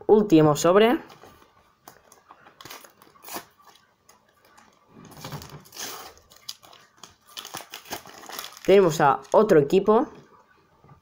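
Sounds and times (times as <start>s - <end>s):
packet wrapper clicks and rustles: 1.8s - 9.5s
wrapper crinkling: 1.8s - 9.6s.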